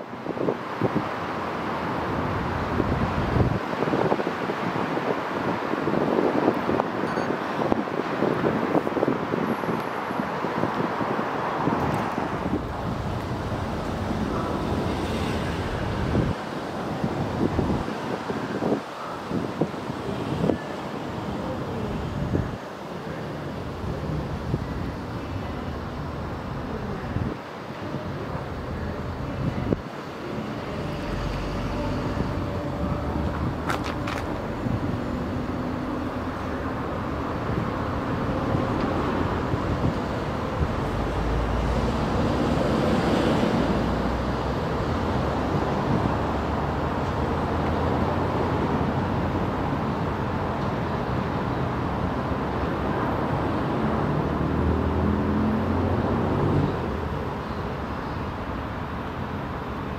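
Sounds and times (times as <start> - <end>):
train rumble: 11.9 - 17.8.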